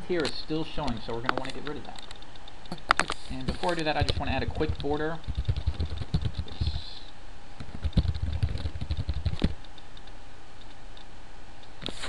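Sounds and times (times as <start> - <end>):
typing on computer keyboard: 3.6 - 6.8, 7.7 - 10.1.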